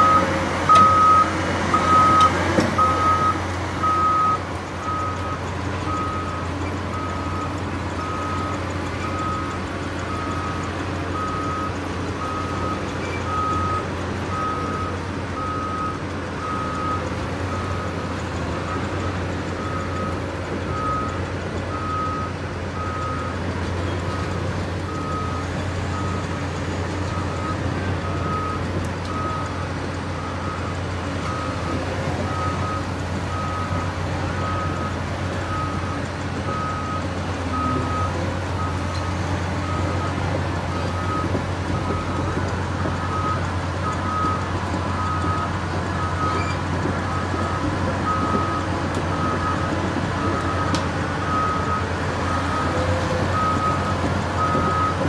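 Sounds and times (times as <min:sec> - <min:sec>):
diesel engine humming: 0:00.0 - 0:55.0
excavator travel alarm beeping: 0:00.0 - 0:55.0.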